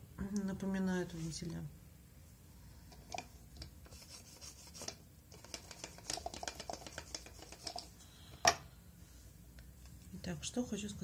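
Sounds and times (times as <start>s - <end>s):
hands rubbing and rustling: 3.1s - 8.0s.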